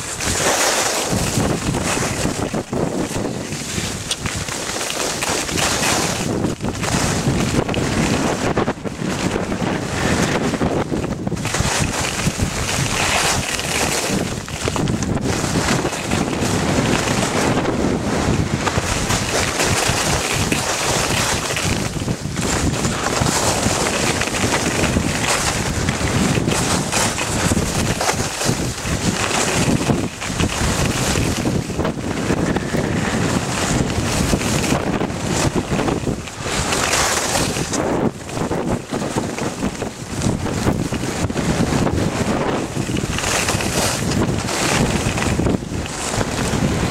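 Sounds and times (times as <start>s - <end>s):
wind buffeting microphone: 0.0s - 46.9s.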